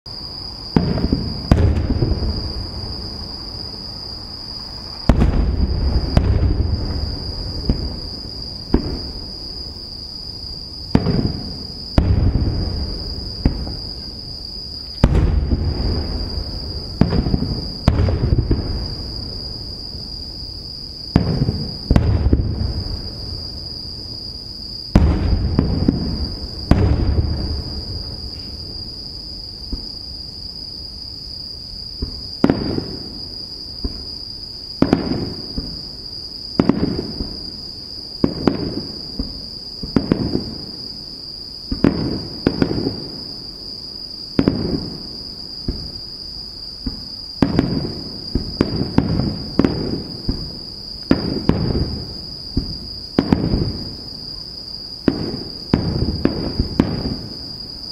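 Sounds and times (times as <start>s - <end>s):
firework shells booming: 0.7s - 3.3s, 5.0s - 9.4s, 10.9s - 14.3s, 14.9s - 19.9s, 21.1s - 23.7s, 24.9s - 28.9s, 32.0s - 33.2s, 34.8s - 35.8s, 36.6s - 37.5s, 41.7s - 43.2s, 44.4s - 46.0s, 46.8s - 54.1s, 55.0s - 57.4s.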